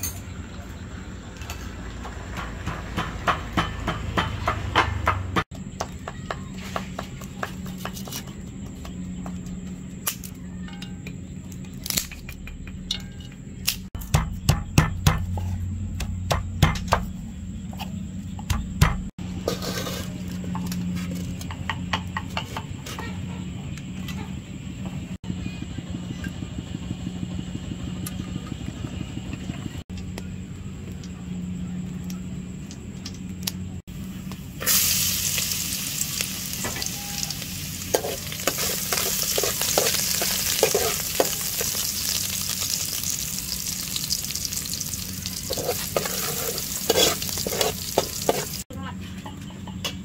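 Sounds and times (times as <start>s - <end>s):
spatula scraping in a wok: 19.3s - 21.3s, 34.6s - 48.6s
metal pot clanking: 37.8s - 43.1s, 45.4s - 48.6s.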